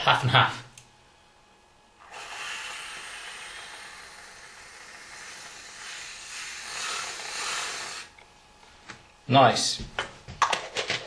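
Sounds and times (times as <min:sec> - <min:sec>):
whipped cream can hissing: 0:02.0 - 0:08.2.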